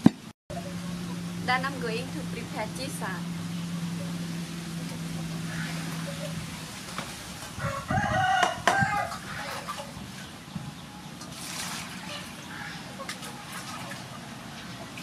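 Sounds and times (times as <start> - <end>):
rooster crowing: 7.5 - 9.6.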